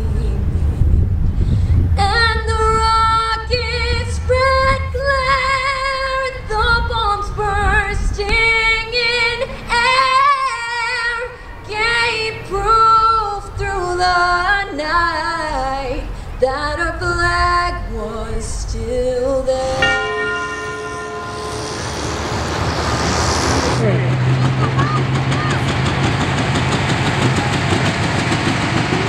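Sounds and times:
woman singing unaccompanied: 0:00.0 - 0:00.5, 0:02.0 - 0:20.1.

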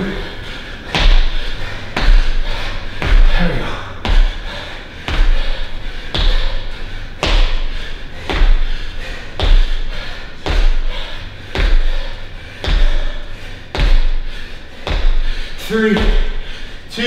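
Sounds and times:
feet thudding on gym floor: 0:04.0 - 0:04.5, 0:06.1 - 0:06.6, 0:07.2 - 0:08.8, 0:09.4 - 0:09.8, 0:10.4 - 0:12.0, 0:13.8 - 0:14.2.

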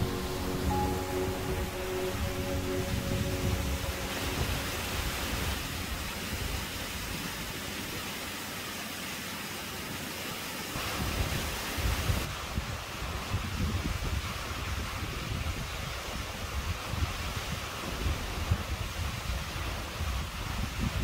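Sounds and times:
waterfall rushing: 0:00.0 - 0:13.2
wind buffeting microphone: 0:11.0 - 0:21.0.

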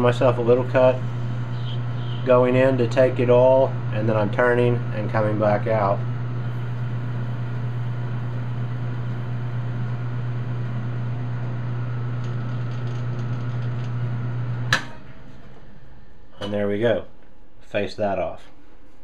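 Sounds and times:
lathe motor hum: 0:00.0 - 0:14.8.

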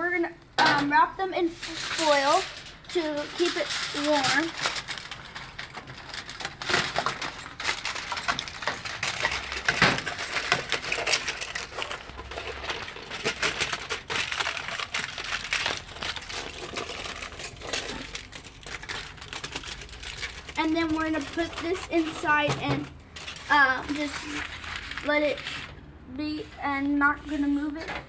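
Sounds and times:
aluminium foil crinkling: 0:01.4 - 0:25.8.

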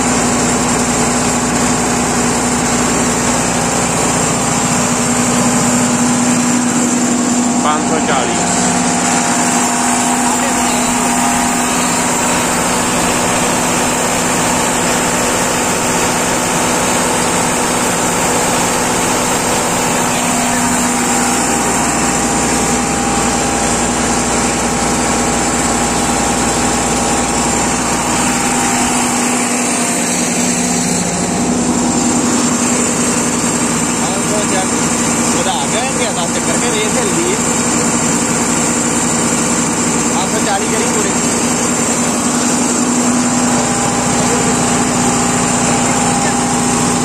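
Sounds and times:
tractor diesel engine running: 0:00.0 - 0:47.0.

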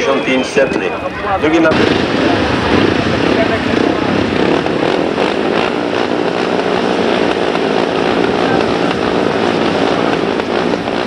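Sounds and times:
motorcycle engines revving: 0:00.0 - 0:11.0.

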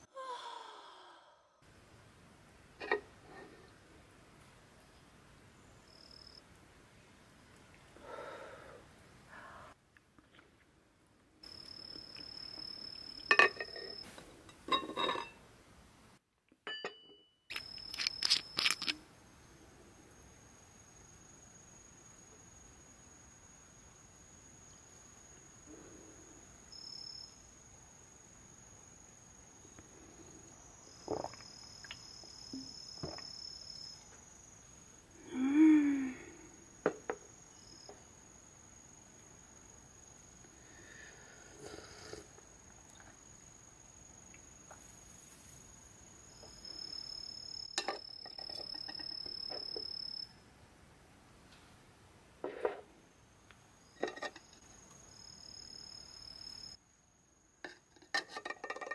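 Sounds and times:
lower insect tone: 0:05.4 - 0:06.5, 0:11.4 - 0:14.1, 0:16.7 - 0:50.7, 0:52.5 - 0:58.9
tableware clinking on wooden table: 0:13.3 - 0:15.4, 0:16.6 - 0:17.3, 0:47.8 - 0:49.1, 0:54.0 - 0:54.5, 0:57.7 - 0:58.9
insects trilling: 0:17.5 - 0:19.0, 0:20.1 - 0:50.4, 0:53.0 - 0:56.8.

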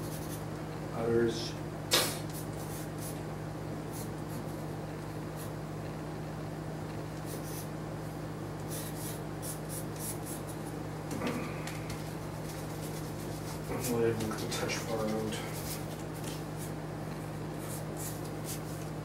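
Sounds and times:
steady low hum: 0:00.0 - 0:19.0
pencil sketching on paper: 0:08.7 - 0:10.7, 0:17.6 - 0:18.8.

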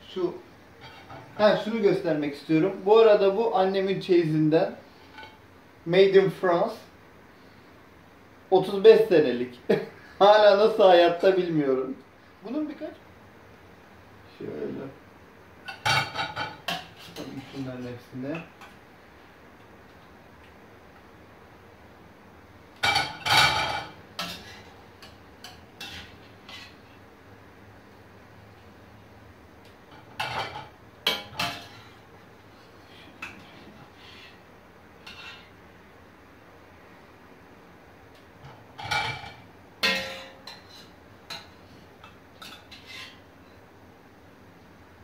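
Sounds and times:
metal utensil clattering on pot: 0:15.7 - 0:17.5, 0:22.8 - 0:26.7, 0:29.9 - 0:31.9, 0:38.4 - 0:43.2
metal spoon scraping steel pot: 0:42.4 - 0:43.2.

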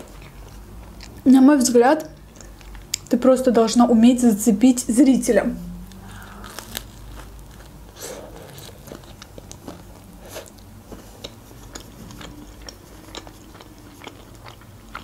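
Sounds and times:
pizza crunching while chewing: 0:05.8 - 0:15.0.

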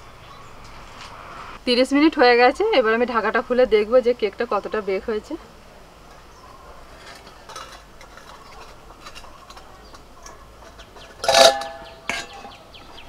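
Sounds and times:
metal lid clanging: 0:06.9 - 0:13.0.

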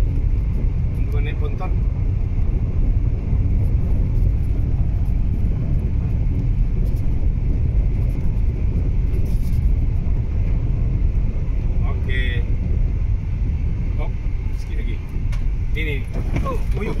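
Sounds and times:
tyres rumbling on gravel: 0:00.0 - 0:17.0.

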